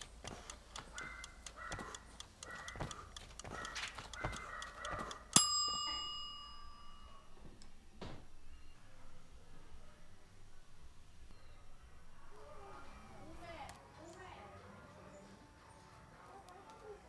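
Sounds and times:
faint even ticking: 0.0 - 13.8
bell ringing: 5.3 - 7.4.

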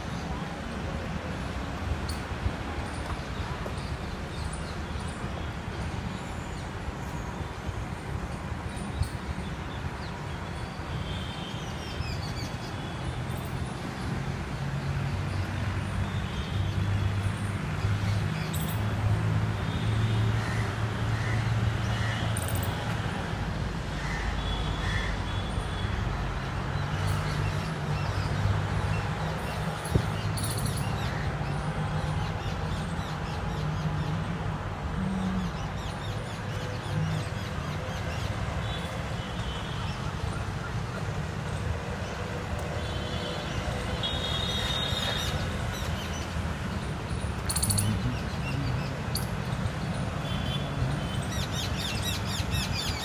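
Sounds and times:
birds chirping and whistling: 47.4 - 48.0.

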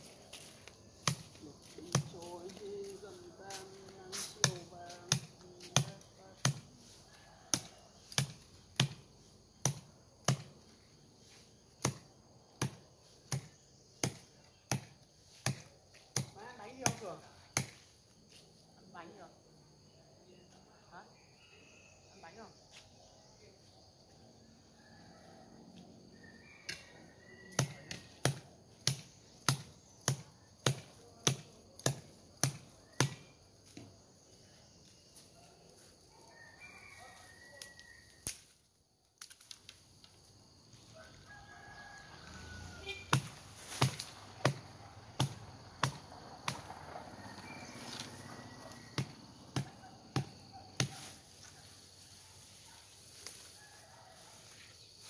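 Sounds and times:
blade chopping bamboo: 11.8 - 17.8, 27.5 - 33.3, 43.1 - 46.7, 49.0 - 51.2.

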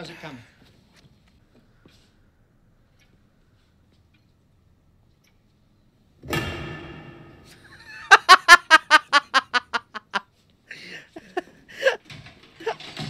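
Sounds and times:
crash with ringing tail: 6.3 - 8.2
woman laughing loudly: 7.7 - 12.0.

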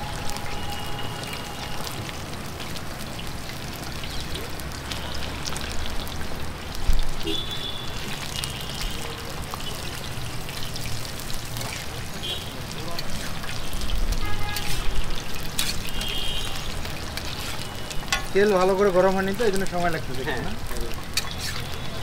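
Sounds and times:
deep-frying crackling sizzle: 0.0 - 22.0
spatula stirring in pan: 13.0 - 18.4, 21.0 - 21.9.

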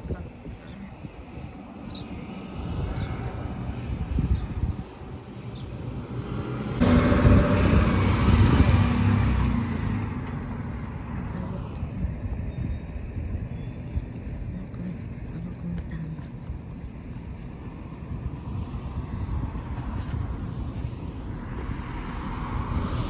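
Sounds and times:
vehicle driving past: 2.2 - 13.1, 17.5 - 23.0.

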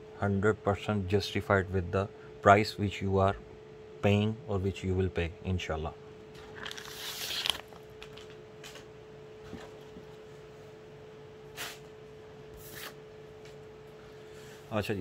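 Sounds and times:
faint hum: 0.0 - 15.0
cloth and plastic rustling: 6.4 - 8.8.

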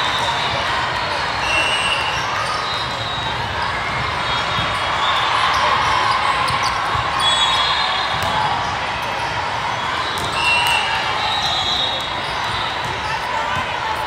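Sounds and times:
many distant voices: 0.0 - 14.0
volleyballs thumping: 8.1 - 8.6.

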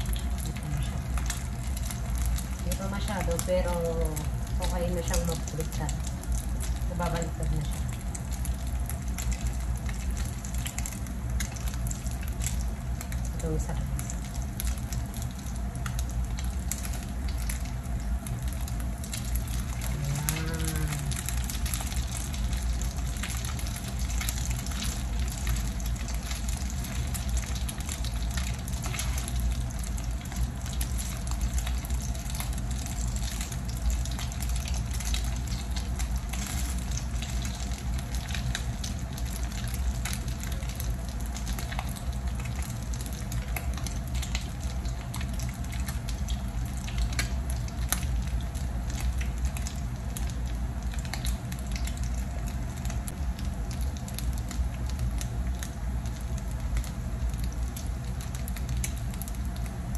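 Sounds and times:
patties sizzling in hot oil: 0.0 - 59.9.

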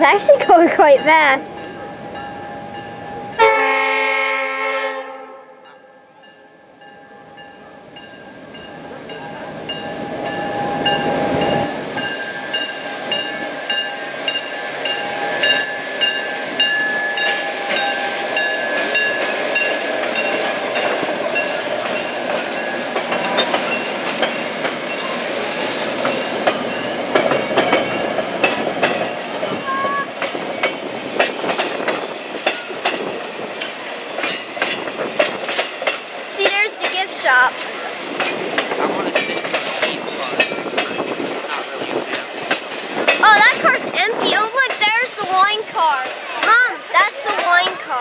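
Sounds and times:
diesel locomotive horn: 3.3 - 6.0
locomotive engine: 6.2 - 48.0
train wheels clicking over rail joints: 8.0 - 48.0.

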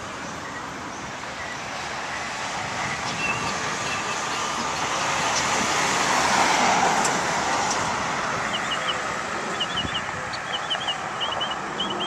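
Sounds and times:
fire engine driving past: 0.0 - 12.0
small bird chirping: 8.5 - 12.0.

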